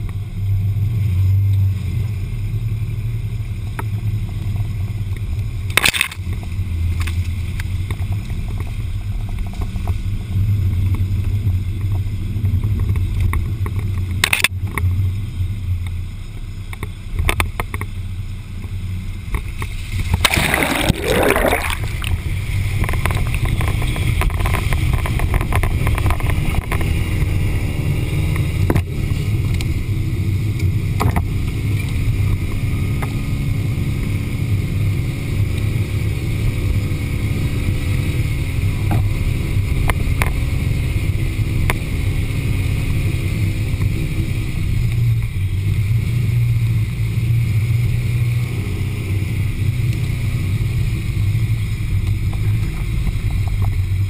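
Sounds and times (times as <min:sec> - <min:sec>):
off-road vehicle engine running: 0:00.0 - 0:54.0
water splash: 0:19.8 - 0:22.5.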